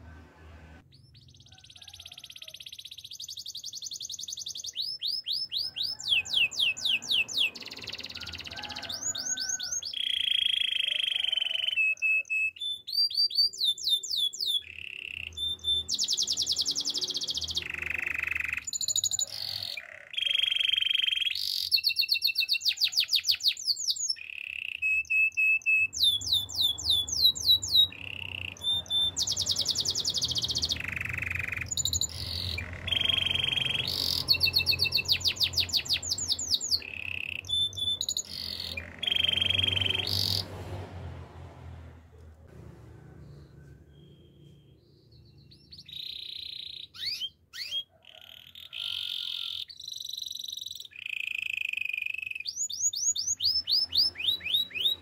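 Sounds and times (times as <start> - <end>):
canary singing trills and chirps: 0.8 - 40.5, 43.9 - 55.0.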